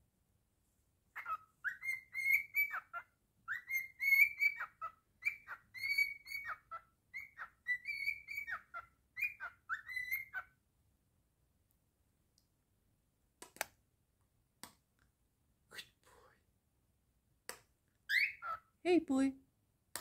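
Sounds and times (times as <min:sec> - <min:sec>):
cockatiel whistling a tune: 0:01.2 - 0:10.5, 0:18.1 - 0:18.6.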